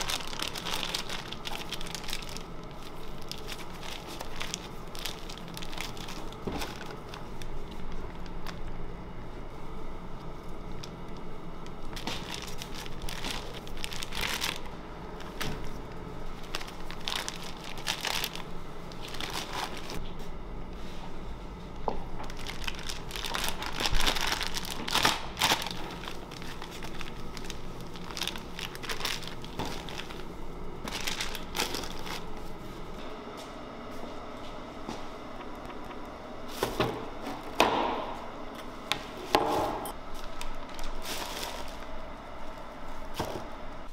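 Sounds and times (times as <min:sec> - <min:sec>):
plastic piping bag crinkling: 0:00.0 - 0:08.7, 0:10.7 - 0:20.0, 0:22.2 - 0:32.7, 0:40.1 - 0:43.5.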